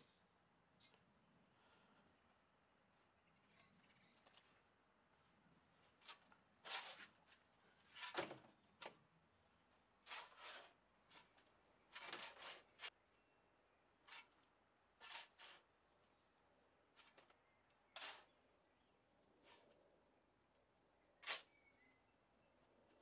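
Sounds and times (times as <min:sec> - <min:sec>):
shovel scraping sand: 0:06.0 - 0:08.2, 0:10.0 - 0:13.0, 0:14.0 - 0:14.3, 0:15.0 - 0:15.7, 0:18.0 - 0:18.4, 0:21.2 - 0:21.6.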